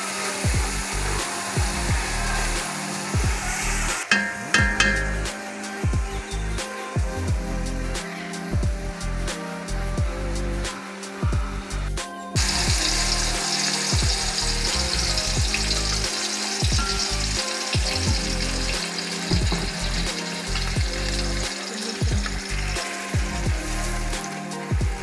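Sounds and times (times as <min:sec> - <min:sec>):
curry sizzling in a pot: 0:00.0 - 0:07.0, 0:12.4 - 0:25.0
background music with bass: 0:00.4 - 0:25.0.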